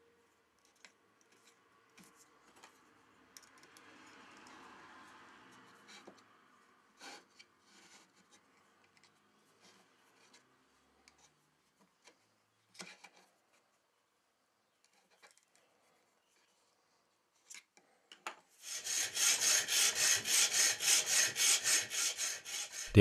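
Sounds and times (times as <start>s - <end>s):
hacksaw cutting steel rod: 18.6s - 23.0s
screw eye scraping into wood: 18.6s - 23.0s.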